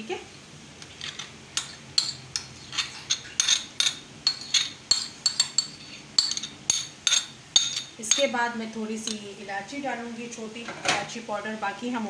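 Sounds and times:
metal spoon clinking on pot: 1.1 - 8.4.

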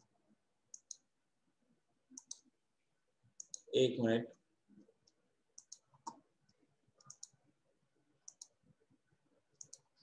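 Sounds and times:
computer mouse clicks: 0.7 - 1.1, 2.1 - 2.5, 3.4 - 3.7, 4.9 - 7.4, 8.2 - 8.6, 9.5 - 10.0.

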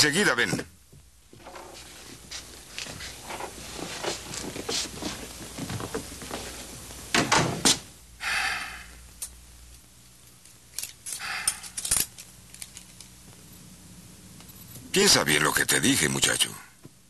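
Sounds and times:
rustling: 1.4 - 6.9
door shutting: 7.1 - 7.9.

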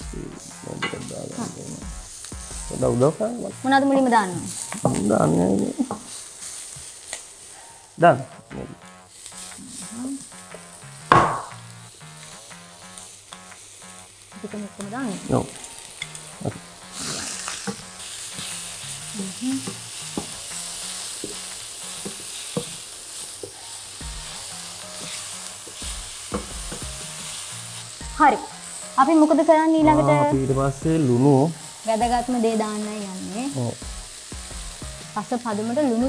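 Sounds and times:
vegetables sizzling in a pan: 0.0 - 36.0
loud knock: 11.0 - 11.6
spatula tapping and scraping pan: 17.4 - 18.6, 19.6 - 27.5.

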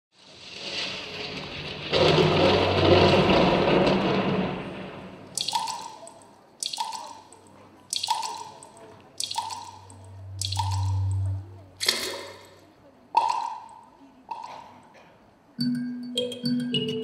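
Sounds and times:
rush of rain-like noise: 0.2 - 6.2
water drops plinking: 5.4 - 12.6, 13.2 - 14.7, 15.6 - 17.0.

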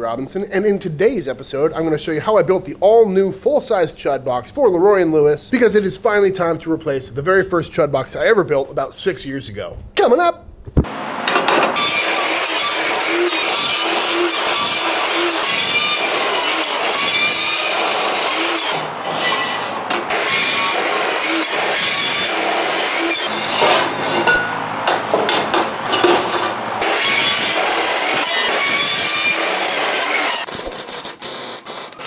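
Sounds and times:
chop saw grinding through steel: 11.2 - 31.3.

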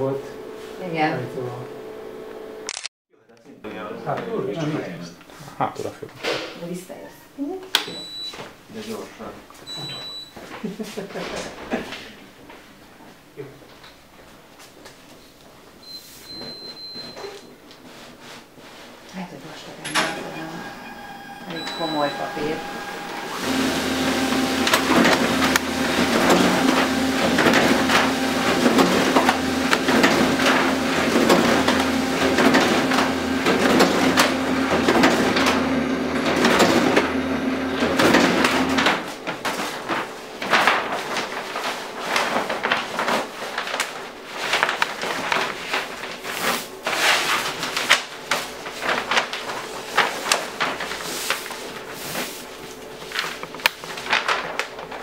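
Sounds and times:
folding machine motor hum: 0.0 - 2.7, 19.8 - 41.4
paper rustling and clicking: 37.8 - 55.0.

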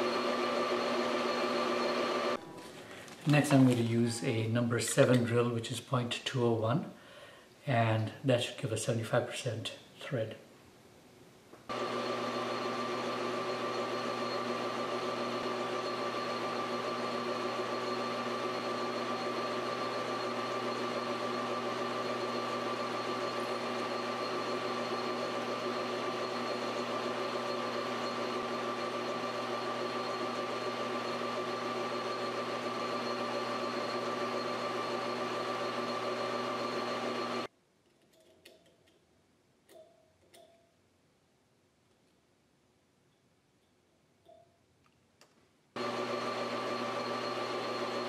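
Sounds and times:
drill boring into copper: 0.0 - 2.4, 11.7 - 37.5, 45.8 - 48.0
metal lathe motor humming: 0.0 - 2.4, 11.7 - 37.5, 45.8 - 48.0.

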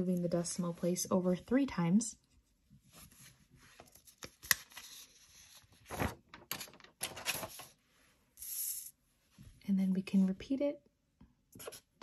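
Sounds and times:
paper rustling: 2.9 - 7.8.

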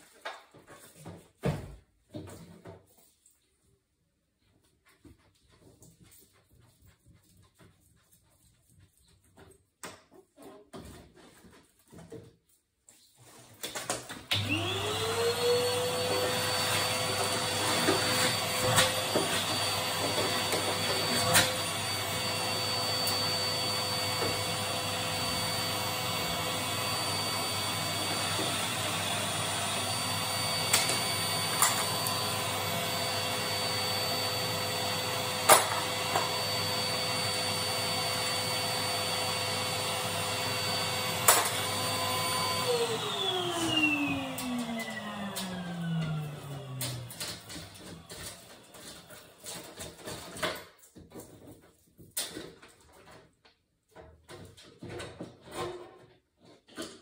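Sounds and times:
vacuum cleaner motor whine: 14.3 - 49.8.

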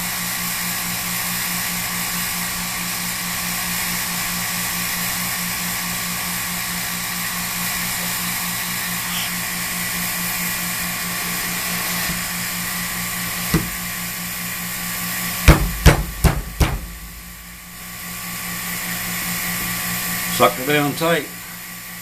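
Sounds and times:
vacuum pump humming: 0.0 - 22.0
sharp knocks: 13.5 - 13.8, 15.5 - 17.8.

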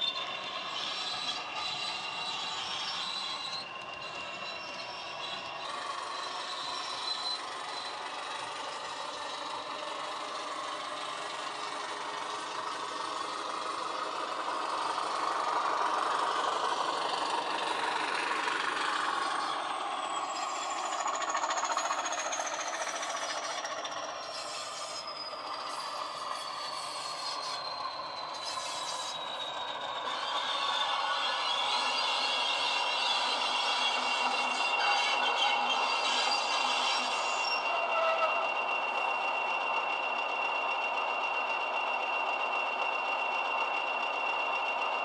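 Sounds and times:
diesel locomotive engine through speaker: 0.0 - 45.0
model wheels on track: 0.0 - 45.0
thin high whistle falling in pitch: 24.8 - 45.0.

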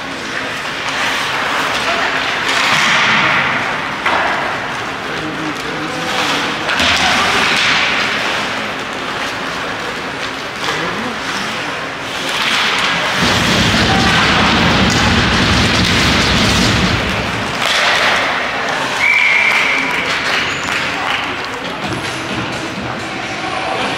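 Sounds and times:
faint voices: 0.0 - 15.3, 17.0 - 23.9
noisy rink din: 0.0 - 23.9
heavy low rumble: 13.1 - 17.6.

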